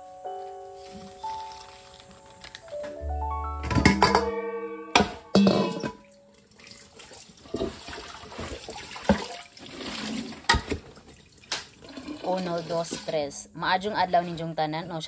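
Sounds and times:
background music: 0.0s - 6.5s
pot knocking against sink: 3.6s - 4.3s, 5.0s - 6.0s
tap water running into sink: 6.4s - 13.2s.

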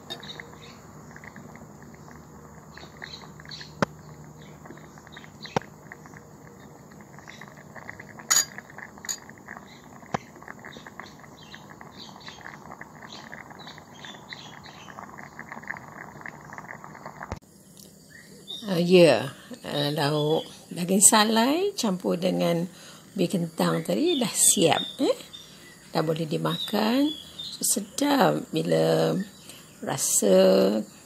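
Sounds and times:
curry bubbling in a pot: 0.0s - 17.4s
sharp glass clinks: 8.3s - 9.2s.

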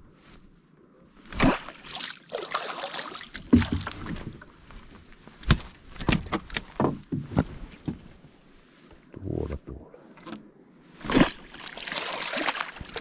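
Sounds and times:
water splashing: 1.4s - 4.3s, 11.0s - 13.0s.

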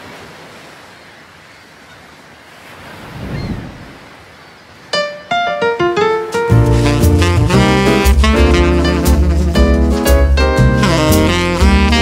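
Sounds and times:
ocean waves breaking: 0.0s - 12.0s
music with struck notes: 5.0s - 12.0s.

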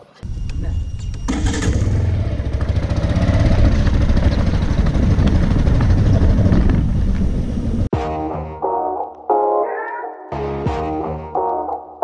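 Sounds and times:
motorcycle engine running: 0.3s - 7.9s.

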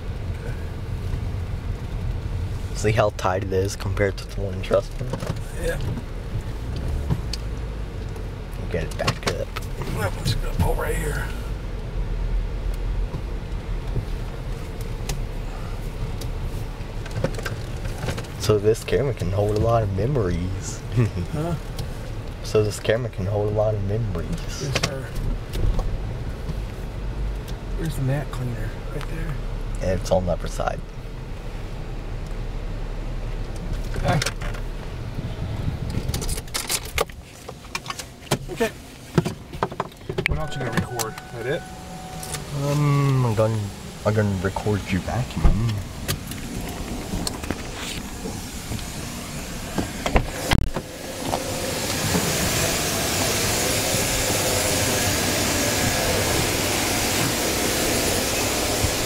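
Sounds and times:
car engine hum inside cabin: 0.0s - 59.0s
faint hum: 40.3s - 49.6s
vacuum rushing hiss: 40.9s - 59.0s
car door clicking and opening: 49.7s - 52.2s.

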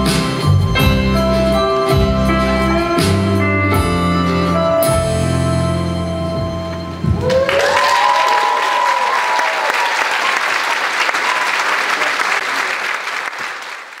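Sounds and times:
audience applauding: 7.1s - 14.0s
voices cheering: 7.2s - 13.0s.

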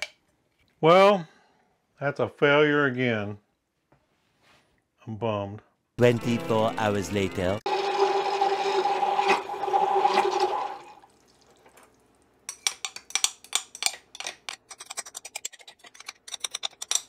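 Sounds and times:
immersion blender whirring: 7.7s - 10.9s.

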